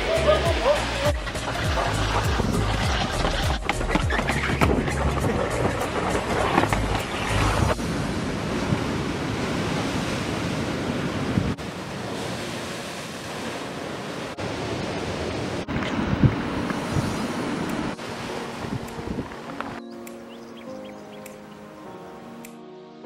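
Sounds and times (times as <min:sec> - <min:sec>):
surf breaking over rocks: 0:00.0 - 0:19.8
wind on microphone: 0:01.1 - 0:11.6, 0:14.4 - 0:19.8.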